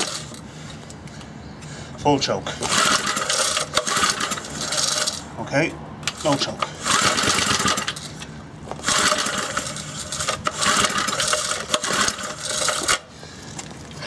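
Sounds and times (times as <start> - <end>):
engine turning over: 0.0 - 0.4, 2.6 - 5.3, 6.0 - 14.0
recoil starter cord rasping: 0.0 - 0.4, 2.6 - 5.3, 6.0 - 13.7.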